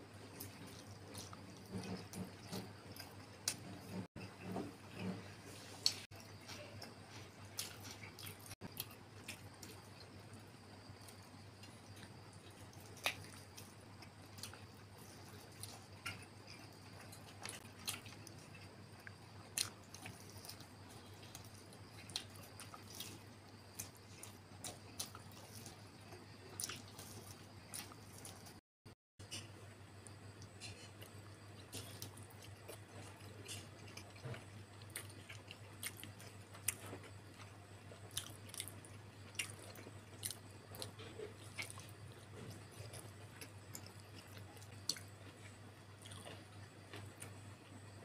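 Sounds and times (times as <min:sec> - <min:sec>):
close chewing and biting: 0:00.2 - 0:05.2, 0:05.8 - 0:28.6, 0:30.3 - 0:47.8
faint low hum: 0:29.2 - 0:48.0.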